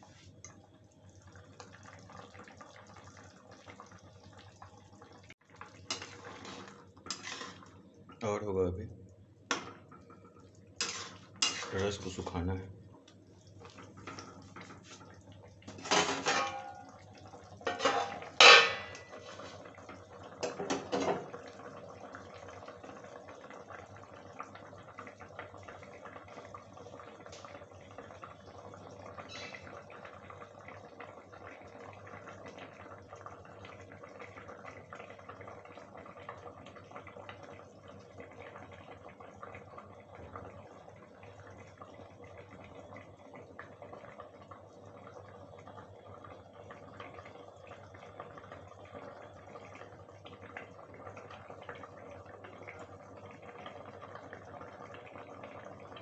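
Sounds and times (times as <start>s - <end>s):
curry simmering hiss: 10.8s - 13.7s, 17.0s - 56.0s
metal plate clanking on pot: 15.7s - 16.9s, 17.6s - 19.1s.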